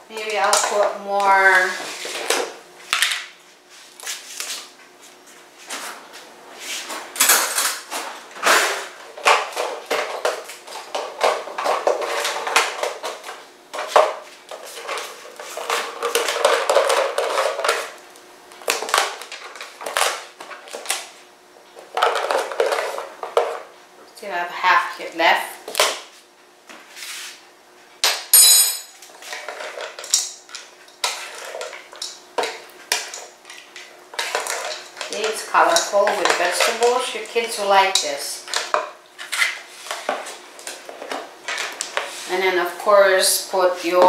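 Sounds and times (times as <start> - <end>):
plastic containers clattering: 7.2 - 18.0, 21.8 - 23.7.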